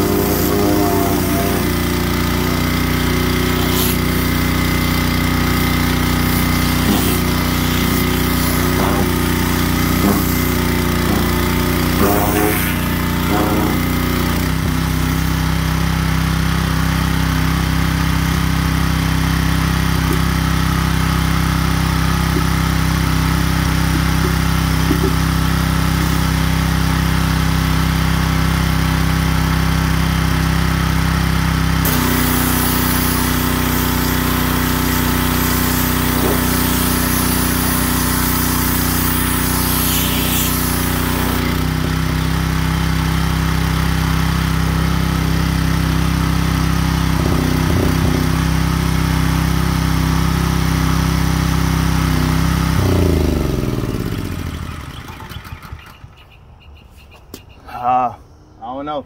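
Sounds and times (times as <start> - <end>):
hissing water spray: 0.0 - 15.8, 31.8 - 43.5
pressure washer engine running: 0.0 - 56.2.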